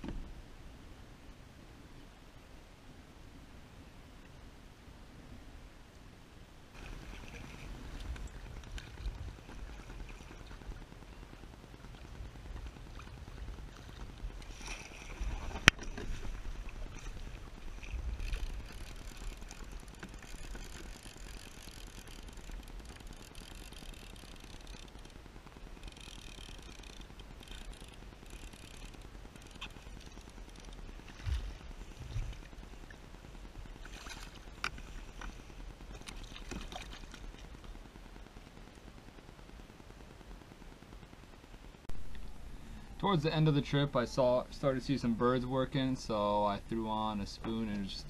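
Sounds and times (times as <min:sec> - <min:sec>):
wind rumble on microphone: 0:05.0 - 0:25.9, 0:27.0 - 0:42.6
water lapping against kayak hull: 0:06.7 - 0:39.6.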